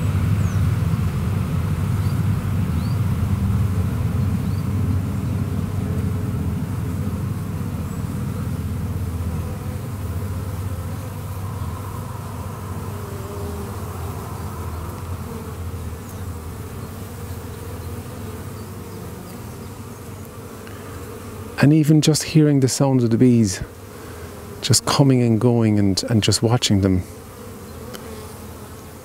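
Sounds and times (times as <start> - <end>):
honeybees buzzing: 0.0 - 29.0.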